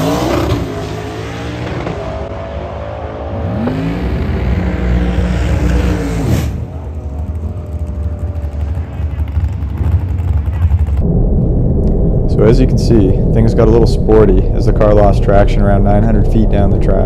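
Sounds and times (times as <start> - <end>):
race car engine accelerating: 0.0 - 11.0
steady hum: 11.0 - 17.0.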